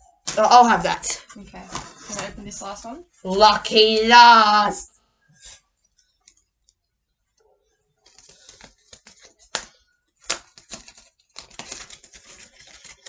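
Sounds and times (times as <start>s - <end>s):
plastic packet crinkling and snapping: 8.0s - 13.0s.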